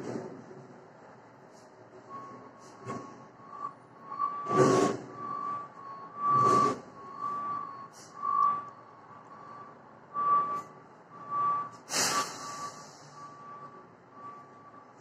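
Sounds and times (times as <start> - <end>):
truck reversing alarm beeping: 1.4 - 15.0
air brakes hissing: 2.4 - 3.2, 7.8 - 8.6, 11.7 - 13.7.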